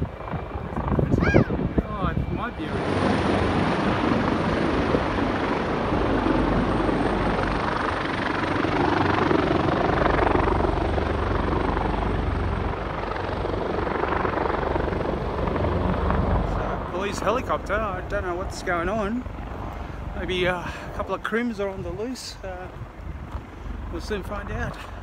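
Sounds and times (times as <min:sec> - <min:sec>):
helicopter flying overhead: 0:00.0 - 0:25.0.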